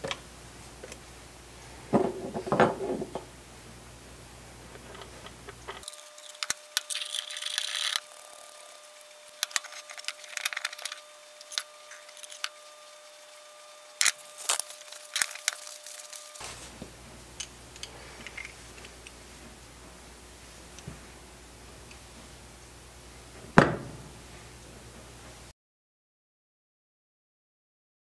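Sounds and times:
metal parts clicking and scraping: 0:04.7 - 0:16.4, 0:17.4 - 0:19.2.

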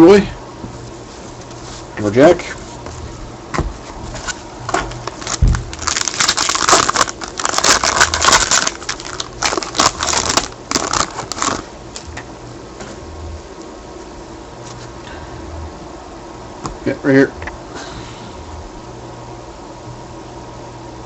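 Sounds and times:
foil pack crinkling: 0:04.1 - 0:12.1.

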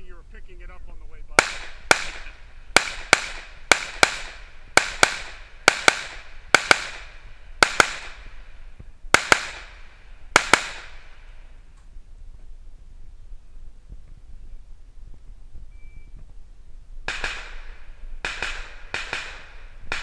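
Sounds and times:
gunshots with echo: 0:01.4 - 0:08.4, 0:09.1 - 0:11.3, 0:17.1 - 0:20.0.

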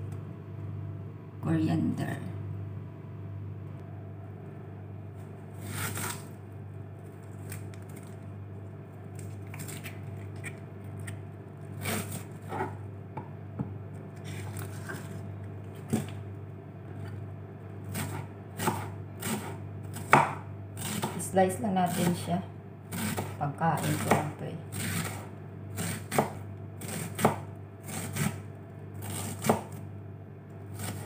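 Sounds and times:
steady low hum: 0:00.0 - 0:31.0
knife slicing onion on board: 0:11.8 - 0:12.8, 0:17.9 - 0:21.2, 0:22.9 - 0:29.8, 0:30.7 - 0:31.0.

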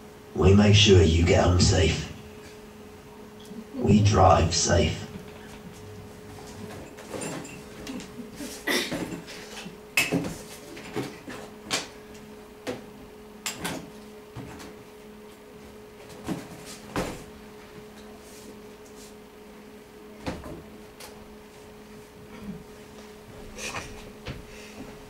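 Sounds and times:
low hum: 0:00.3 - 0:08.4.

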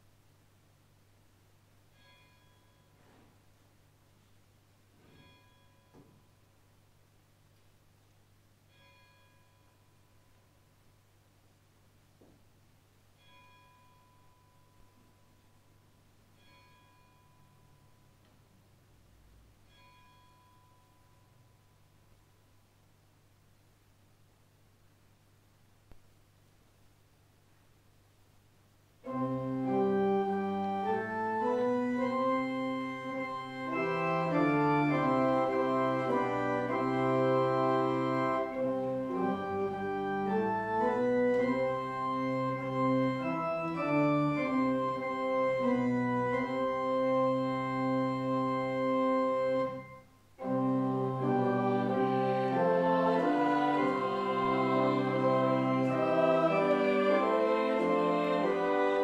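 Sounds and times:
church organ chords: 0:29.0 - 0:59.0.

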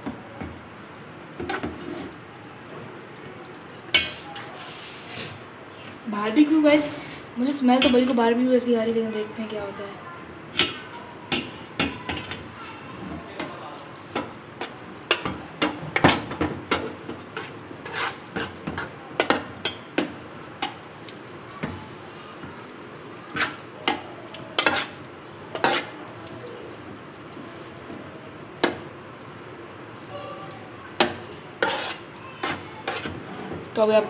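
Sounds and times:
metal utensil scraping pot: 0:01.4 - 0:02.2, 0:14.6 - 0:20.0, 0:23.2 - 0:26.0, 0:31.0 - 0:33.6.

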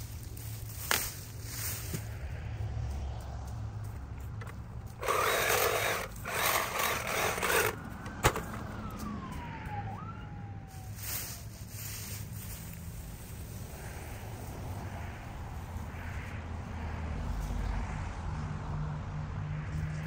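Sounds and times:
chainsaw cutting palm fronds: 0:05.0 - 0:09.2.

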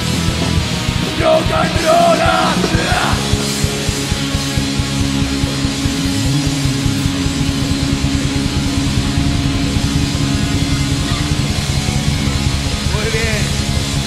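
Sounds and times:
drumming: 0:00.0 - 0:06.4
distorted electric guitars: 0:00.0 - 0:14.0.

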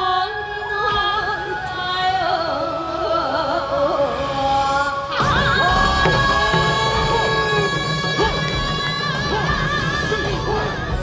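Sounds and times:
heavy drums: 0:05.2 - 0:11.0.

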